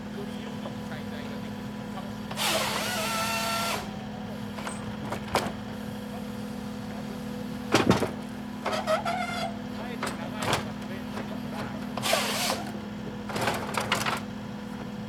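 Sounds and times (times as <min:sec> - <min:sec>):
machine engine and hydraulics: 0:00.5 - 0:15.0
chain saw cutting log: 0:02.3 - 0:03.9, 0:08.7 - 0:09.6, 0:11.8 - 0:12.8
clatter of knocks: 0:04.6 - 0:05.6, 0:07.7 - 0:12.0, 0:13.3 - 0:14.3.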